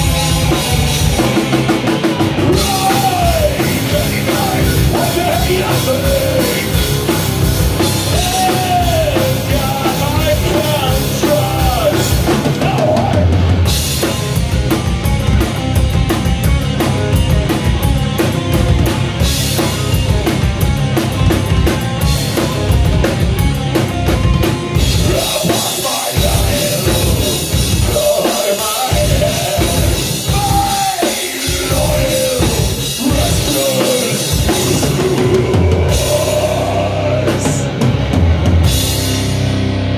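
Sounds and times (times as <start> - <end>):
live heavy metal band: 0.0 - 39.9.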